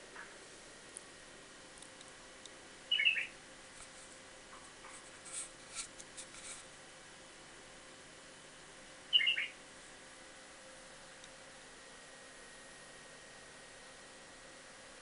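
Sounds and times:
bird chirping calls: 2.9 - 3.4, 9.1 - 9.6.

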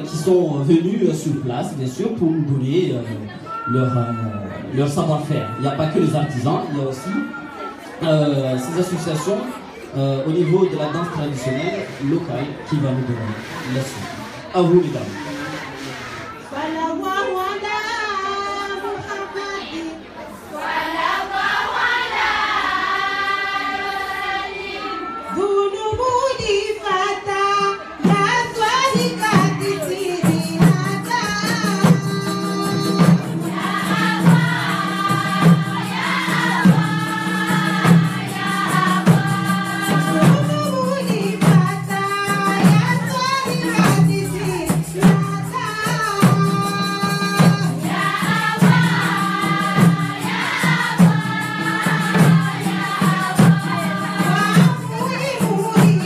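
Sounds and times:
women singing a chant: 16.5 - 56.0
frame drums beating: 28.0 - 56.0.

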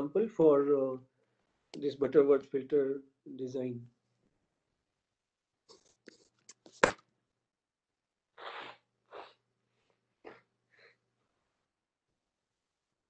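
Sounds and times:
person sneezing: 8.4 - 9.4.

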